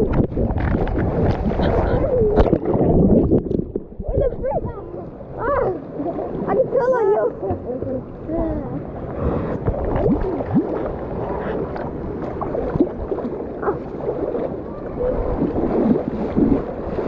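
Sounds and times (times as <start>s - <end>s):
pool water churning and gurgling: 0.0s - 17.0s
short bubbling blips: 9.7s - 10.9s.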